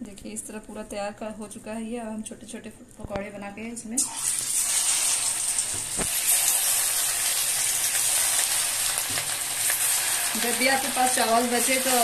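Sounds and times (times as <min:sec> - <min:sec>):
batter sizzling in hot oil: 0:04.0 - 0:12.0.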